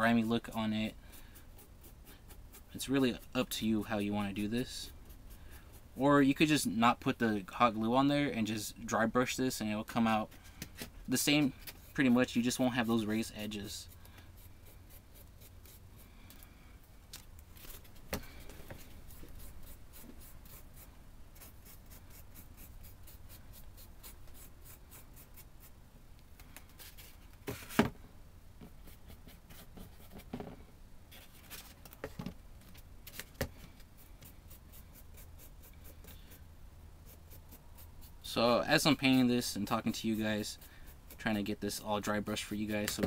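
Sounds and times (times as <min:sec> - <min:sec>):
paintbrush scratching strokes: 0:00.0 - 0:06.6, 0:11.2 - 0:16.2, 0:17.6 - 0:25.8, 0:28.7 - 0:30.3, 0:33.9 - 0:36.4, 0:37.0 - 0:42.8.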